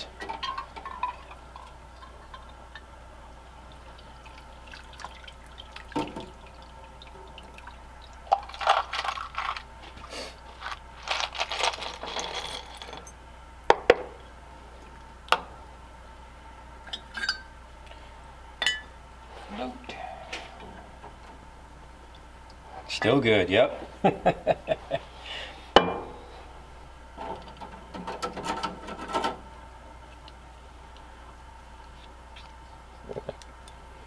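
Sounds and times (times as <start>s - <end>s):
water splashing and draining: 3.6s - 8.6s.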